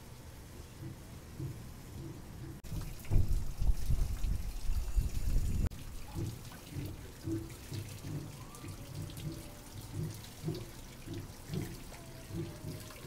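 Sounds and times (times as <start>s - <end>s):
water splashing from waterwheel: 2.6s - 4.8s, 5.4s - 13.0s.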